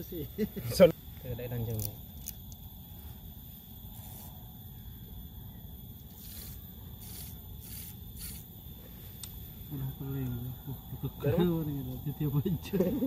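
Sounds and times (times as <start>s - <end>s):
thin hiss: 6.1s - 9.6s.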